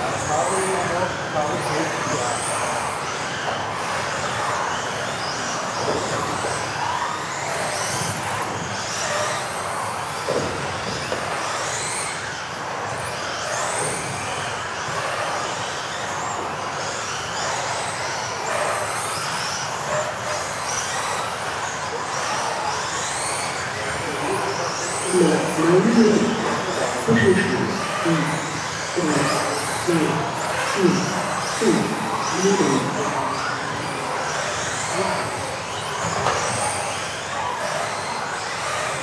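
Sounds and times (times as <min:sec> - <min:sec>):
rc car motors whining: 0:00.0 - 0:39.0.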